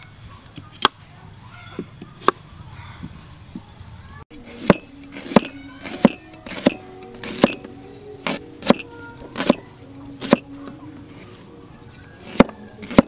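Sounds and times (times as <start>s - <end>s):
cleaver chopping on cutting board: 8.3s - 8.8s.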